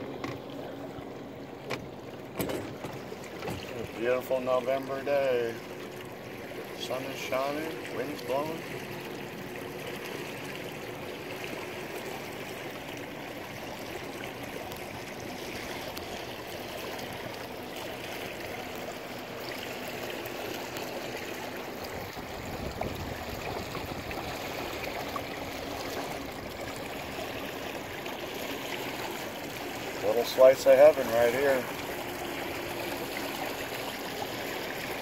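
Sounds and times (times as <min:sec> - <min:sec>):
water rushing along boat hull: 0:00.0 - 0:35.0
wind rumbling on microphone: 0:22.0 - 0:24.5.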